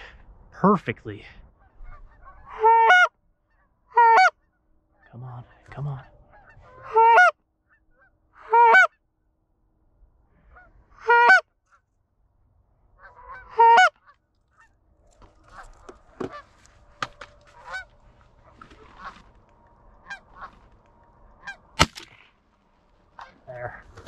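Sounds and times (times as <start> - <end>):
goose honks: 1.6 - 4.4, 5.8 - 9.0, 10.4 - 11.8, 13.0 - 14.7, 15.4 - 16.5, 17.3 - 19.3, 20.0 - 20.6, 21.4 - 21.7, 23.2 - 23.8.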